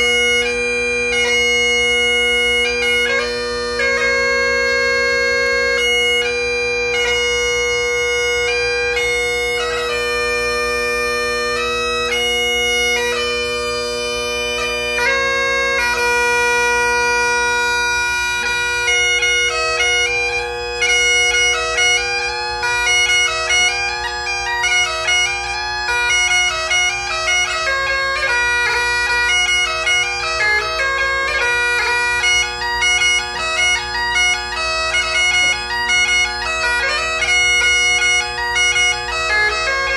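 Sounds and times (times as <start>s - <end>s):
bagpipe chanter melody: 0.0s - 39.9s
bagpipe drone: 0.0s - 39.9s.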